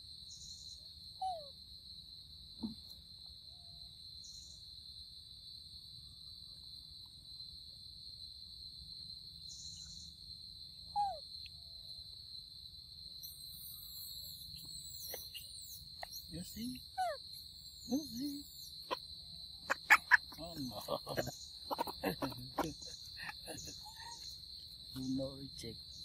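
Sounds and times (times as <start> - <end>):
insects trilling: 0.0 - 26.0
squeaky call: 19.7 - 24.2.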